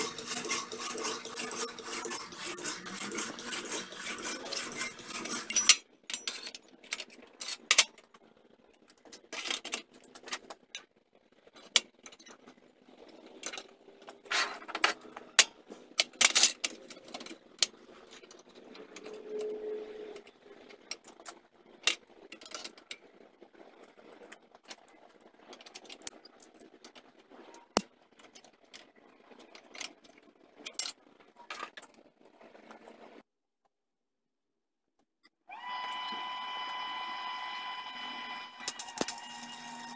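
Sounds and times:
metal pieces clanking on steel table: 4.5 - 7.9.

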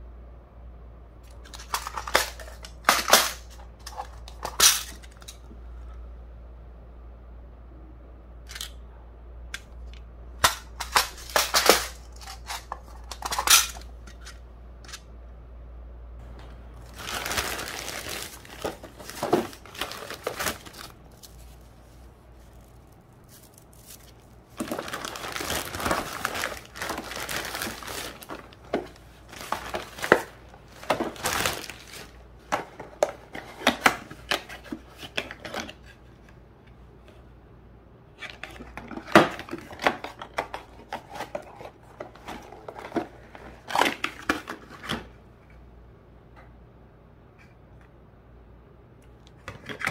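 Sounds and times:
plastic bag crinkling: 16.7 - 32.3.

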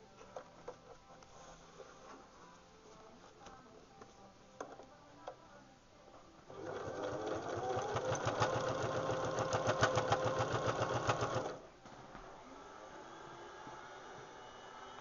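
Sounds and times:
sewing machine stitching: 6.5 - 11.6.

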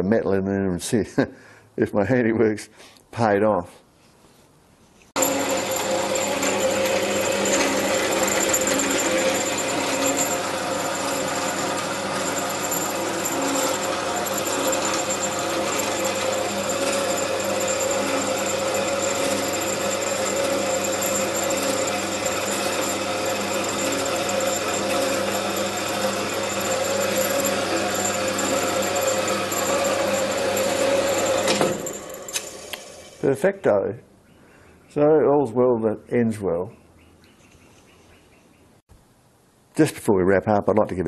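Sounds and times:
bandsaw cutting metal rod: 5.2 - 33.3.

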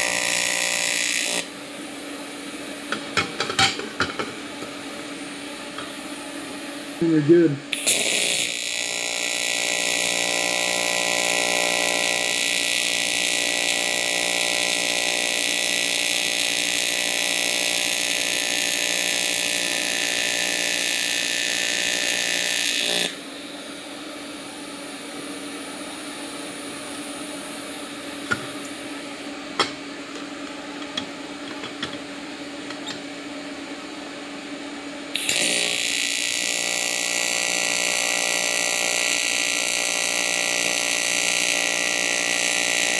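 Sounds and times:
welding arc buzzing: 0.0 - 31.9, 35.1 - 42.9.

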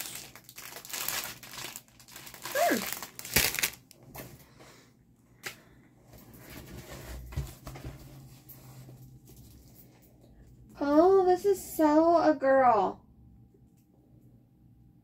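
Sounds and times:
plastic packaging crinkling: 0.0 - 4.3.

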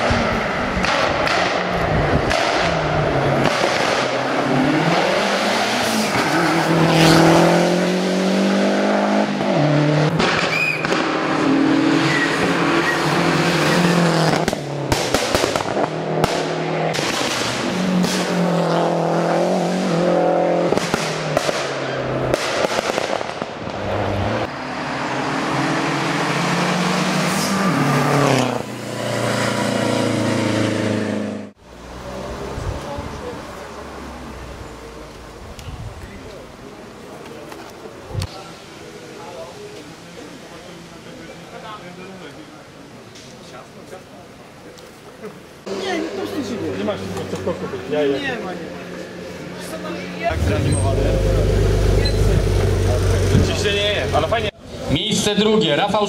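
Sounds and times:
rally car engine revving: 0.0 - 33.0, 49.2 - 54.5.

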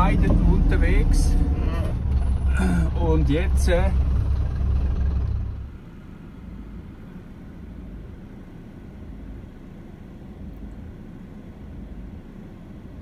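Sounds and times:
vehicle engines idling: 0.0 - 13.0.

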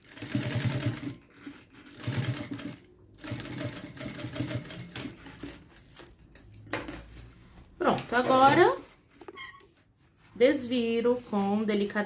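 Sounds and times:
sewing machine stitching: 0.0 - 5.7.

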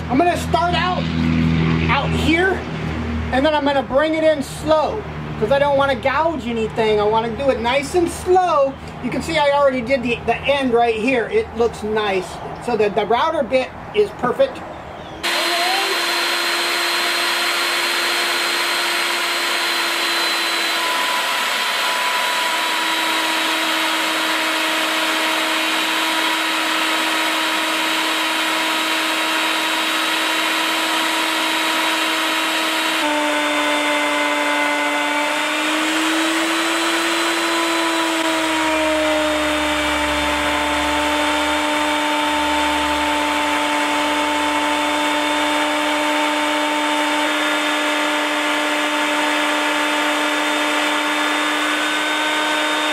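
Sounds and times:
router whining: 15.2 - 52.9.

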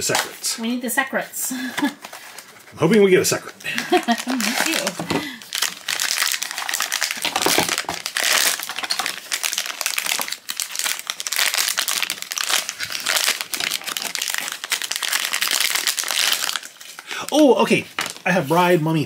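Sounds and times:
foil pouch crinkling: 3.3 - 18.4.

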